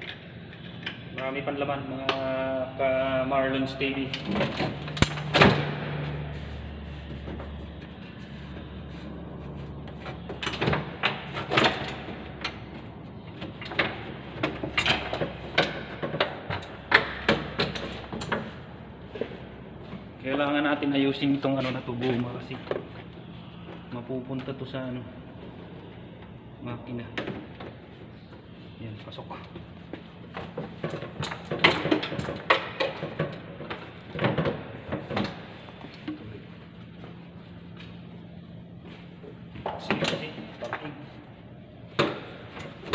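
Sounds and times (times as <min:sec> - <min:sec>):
clicks and clanks of engine parts: 0:09.8 - 0:18.5, 0:29.4 - 0:36.3.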